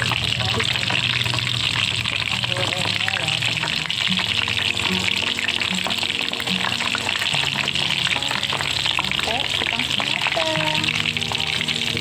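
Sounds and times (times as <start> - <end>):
wrappers deep-frying in oil: 0.0 - 12.0.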